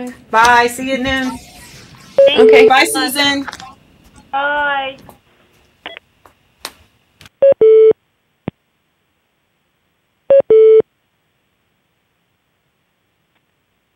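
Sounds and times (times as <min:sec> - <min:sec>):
videoconference disconnect tone: 0:00.4 - 0:03.9.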